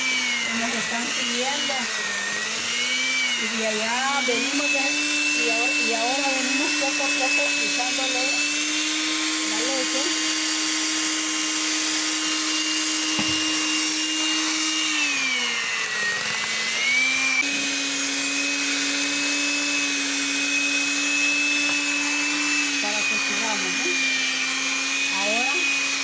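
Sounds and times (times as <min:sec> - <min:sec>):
electric hand mixer running: 0:00.0 - 0:26.0.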